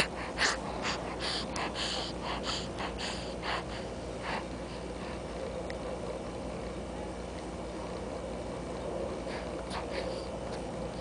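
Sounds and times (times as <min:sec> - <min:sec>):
baby snuffly breaths and snorts: 0:00.0 - 0:05.2.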